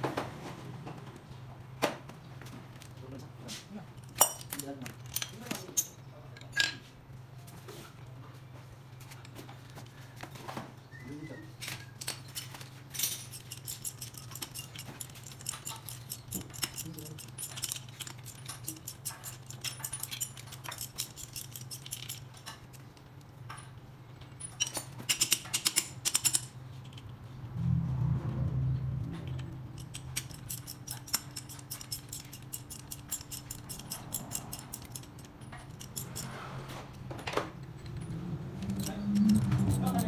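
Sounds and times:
metal tool clinks: 0:12.0 - 0:22.6, 0:29.7 - 0:36.3
ratchet wrench clicking: 0:13.2 - 0:22.6, 0:24.6 - 0:26.6, 0:29.3 - 0:36.3, 0:37.8 - 0:40.0.

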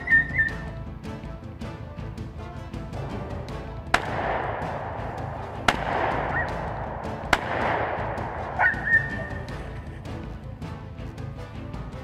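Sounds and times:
gunshots echoing: 0:03.8 - 0:09.8.

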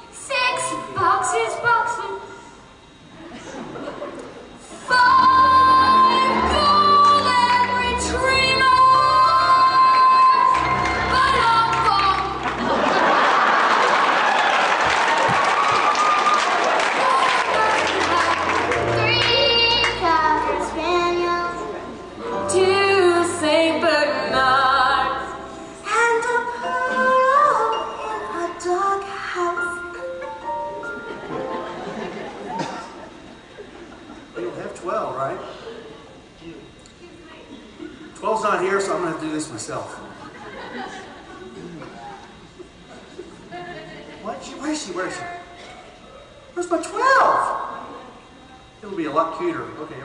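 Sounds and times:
orchestra playing: 0:05.0 - 0:13.3, 0:17.5 - 0:26.7
children singing into microphone: 0:16.8 - 0:22.0.

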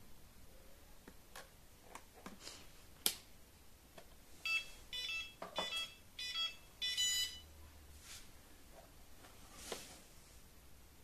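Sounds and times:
short electronic beeps: 0:04.4 - 0:07.4.

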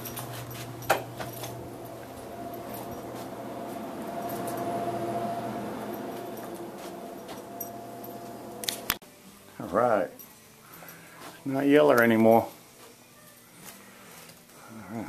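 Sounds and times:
faint whine: 0:00.0 - 0:09.0
refrigerator hum: 0:00.0 - 0:09.0.

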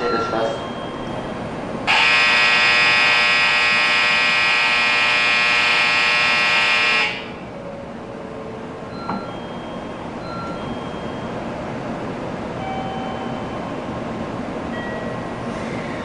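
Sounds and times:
train equipment humming: 0:00.0 - 0:16.0
train door thudding shut: 0:09.0 - 0:09.4.

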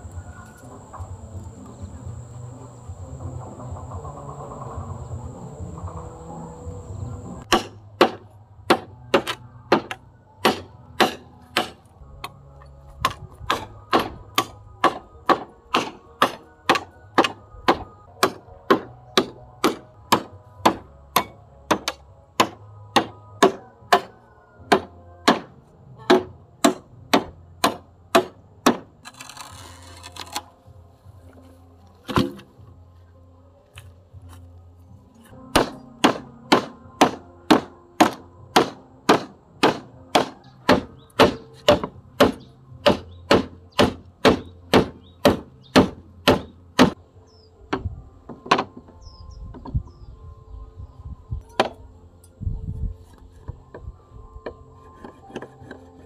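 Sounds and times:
hand tool striking wood: 0:07.4 - 0:11.9, 0:13.0 - 0:24.1, 0:24.7 - 0:25.5, 0:26.1 - 0:28.9, 0:32.1 - 0:32.5, 0:35.5 - 0:47.0, 0:47.7 - 0:48.8, 0:54.4 - 0:56.0.

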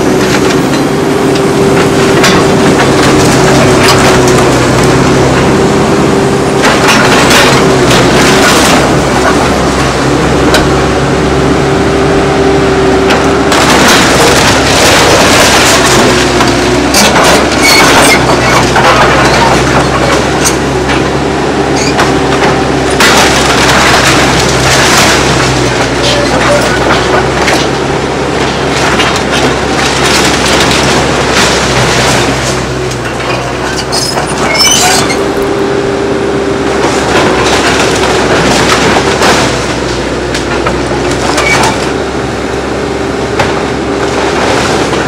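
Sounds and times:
cracking and clattering: 0:00.0 - 0:05.7, 0:06.5 - 0:10.8, 0:13.0 - 0:35.5, 0:36.8 - 0:42.0, 0:43.4 - 0:45.0
engine whine: 0:00.0 - 0:45.0
excavator diesel engine running: 0:00.0 - 0:45.0.

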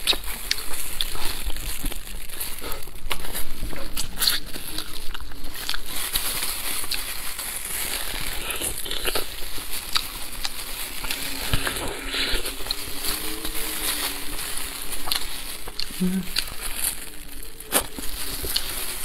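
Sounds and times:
meat crackling clicks: 0:00.0 - 0:11.6
plastic gloves crinkling: 0:00.0 - 0:19.0
wet chewing and sucking: 0:00.0 - 0:19.0.

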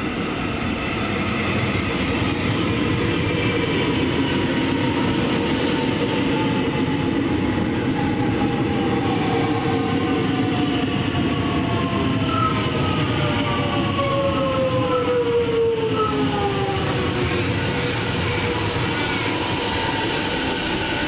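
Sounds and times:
train carriages rolling past: 0:00.0 - 0:21.0.

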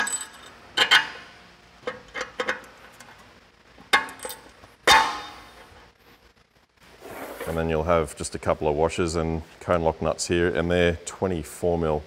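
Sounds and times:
metal bolts clinking: 0:00.0 - 0:03.1, 0:03.9 - 0:05.4.

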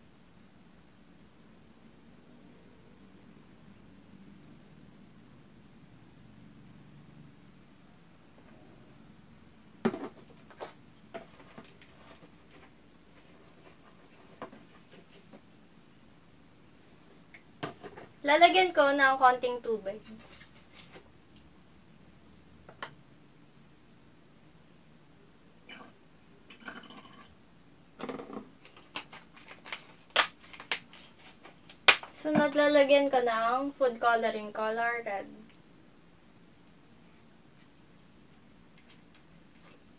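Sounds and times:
plastic bottle crackling: 0:28.1 - 0:32.6.

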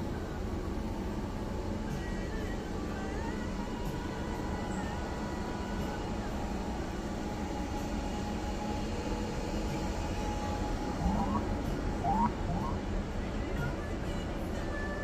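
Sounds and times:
low rumble and din: 0:00.0 - 0:15.0
short rising chirps: 0:11.0 - 0:12.8.

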